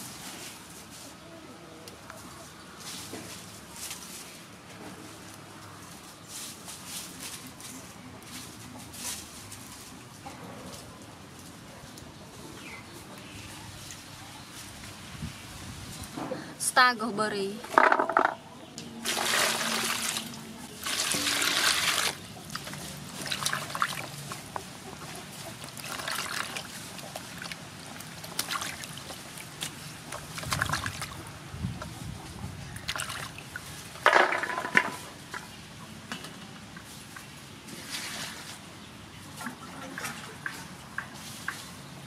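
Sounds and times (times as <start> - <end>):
water pouring into a metal basin: 19.0 - 24.0
hands washing vegetables in water: 19.0 - 32.0, 32.8 - 42.0.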